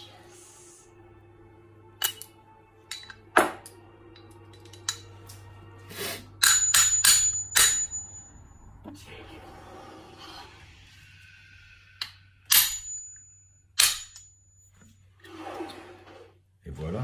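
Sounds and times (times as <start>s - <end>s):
metal clicks and clinks: 2.9s - 3.2s, 4.2s - 5.1s
sharp metallic strikes ringing: 6.4s - 8.6s, 12.5s - 14.3s.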